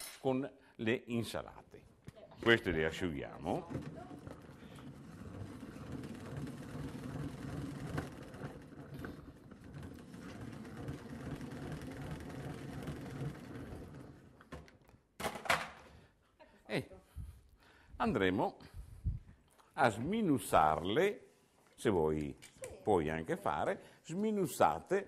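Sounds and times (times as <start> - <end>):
salad spinner whirring: 4.0 - 14.4.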